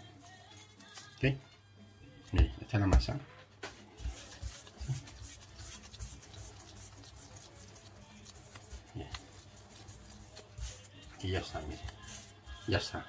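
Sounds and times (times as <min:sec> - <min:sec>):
hands rolling dough: 0:02.9 - 0:13.0.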